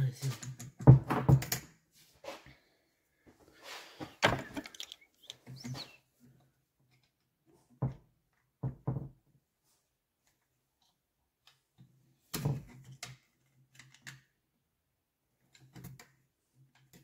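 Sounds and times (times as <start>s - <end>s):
metal parts knocking and clinking: 4.2s - 5.3s.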